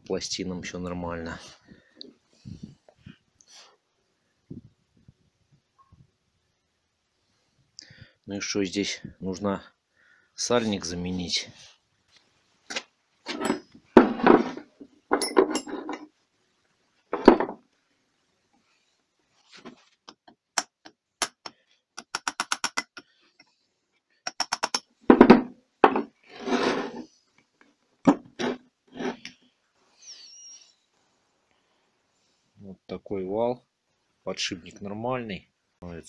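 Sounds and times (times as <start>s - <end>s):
metal knocks and clinks: 13.3s - 14.4s, 15.1s - 16.1s.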